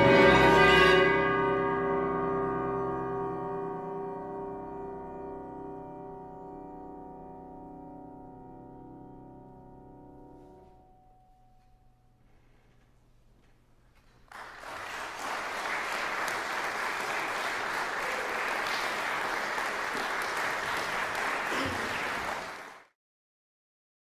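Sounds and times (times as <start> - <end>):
audience applause: 14.3 - 22.9.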